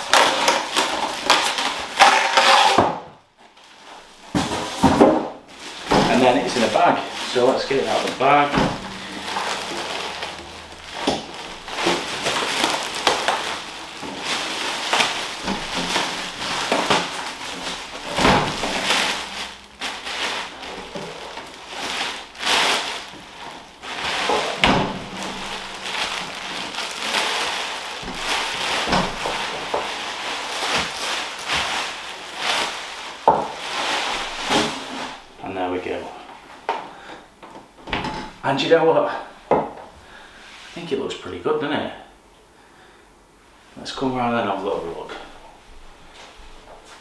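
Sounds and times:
plastic bag crinkling: 0.0s - 2.8s, 3.4s - 36.2s.

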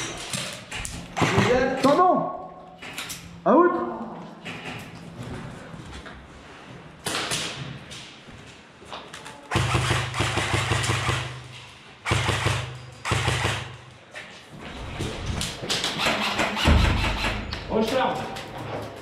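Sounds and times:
airsoft rifle full-auto fire: 9.5s - 11.4s, 12.0s - 13.8s.

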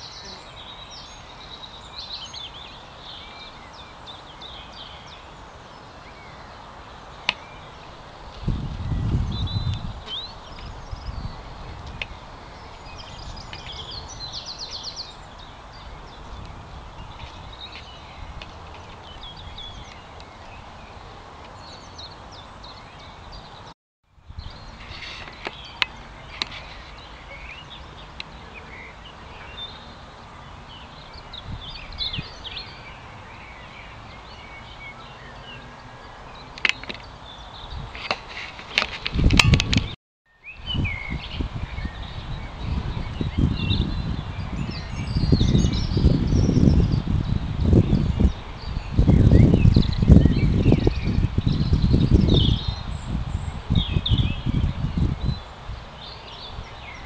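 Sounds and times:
small birds chirping: 0.0s - 23.7s, 24.3s - 57.0s
background hiss: 0.0s - 39.0s
low rumble on microphone: 7.7s - 34.4s, 40.6s - 55.4s.

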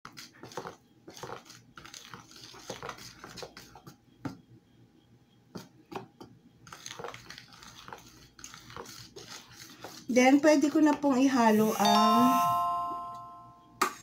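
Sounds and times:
utensil stirring batter in bowl: 0.1s - 4.0s, 6.7s - 11.8s.

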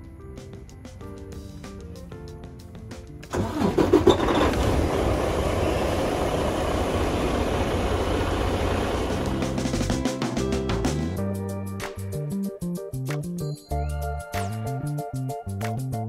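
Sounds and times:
starter motor cranking: 3.3s - 9.2s
diesel engine idling: 3.3s - 9.6s.

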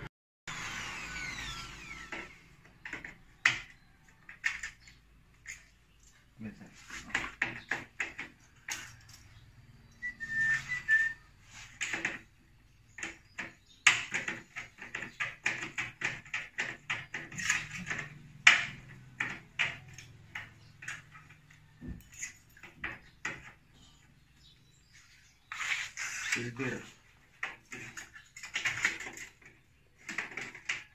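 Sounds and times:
short high whistle: 10.0s - 11.3s
clicks and taps on metal frame: 13.0s - 23.6s.

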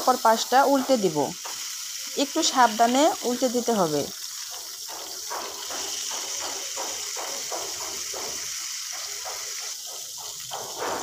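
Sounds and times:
oil sizzling in a frying pan: 0.0s - 11.0s.

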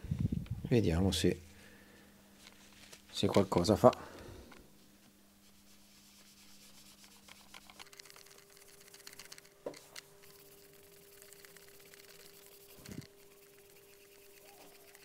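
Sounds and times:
faint steady hum: 0.0s - 15.0s
faint rubbing of polishing paste: 5.4s - 9.2s, 9.8s - 15.0s.

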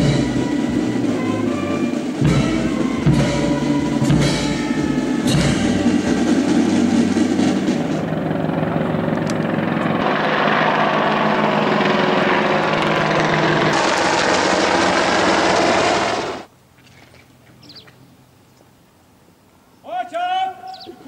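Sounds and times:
helicopter rotor and engine noise: 0.0s - 16.5s.

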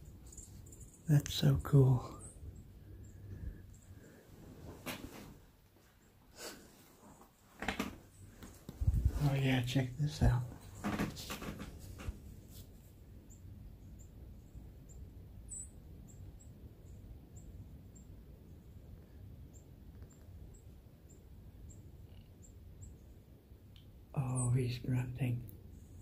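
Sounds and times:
faint low outdoor rumble: 0.0s - 26.0s
small bird high chirps: 14.8s - 18.1s.

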